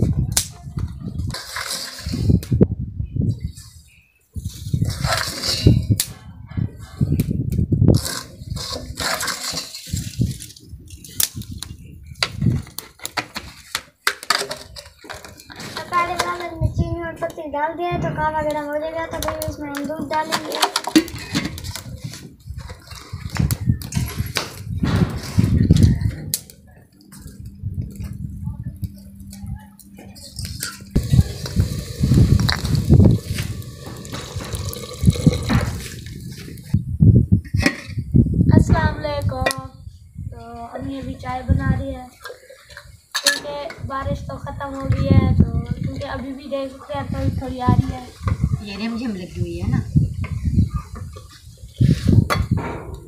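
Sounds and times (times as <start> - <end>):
low rumbles: 30.9 - 37.4
metal pots clicking: 31.0 - 36.2
tea boiling hiss: 31.0 - 36.7.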